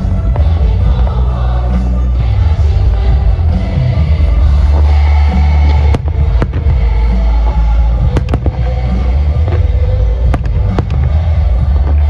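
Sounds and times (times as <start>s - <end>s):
loud music with heavy bass: 0.0s - 12.0s
fireworks bangs: 4.7s - 12.0s.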